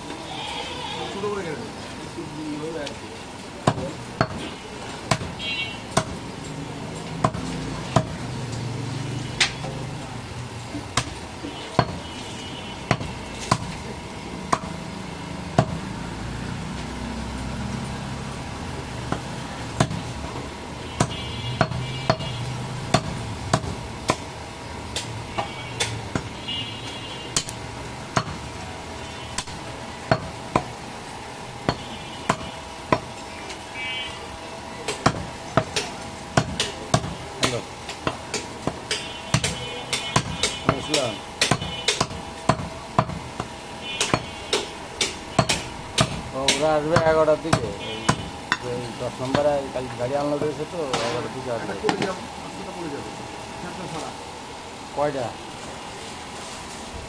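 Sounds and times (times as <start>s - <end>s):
knife chopping meat on wood block: 3.7s - 4.4s, 5.1s - 6.2s, 7.2s - 8.2s, 11.8s - 12.0s, 12.9s - 13.7s, 14.5s - 14.8s, 15.6s - 15.8s, 19.1s - 20.1s, 21.0s - 22.3s, 22.9s - 24.3s, 31.7s - 33.1s, 34.9s - 48.7s.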